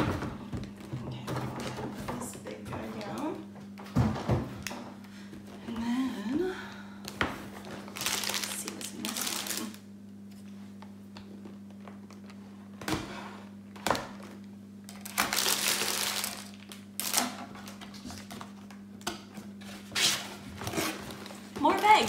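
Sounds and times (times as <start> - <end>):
steady low hum: 0.0 - 22.0
plastic bags crinkling: 7.9 - 9.8, 14.9 - 18.4.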